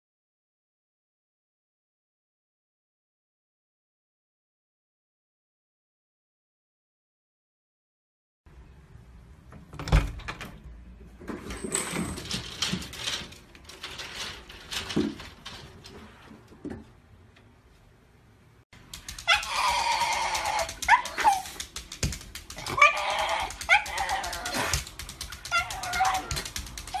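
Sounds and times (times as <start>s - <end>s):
knocks and rustling: 9.5s - 17.2s
dog yelping: 19.1s - 21.7s, 22.6s - 27.0s
dog whining: 19.2s - 21.7s, 22.6s - 27.0s.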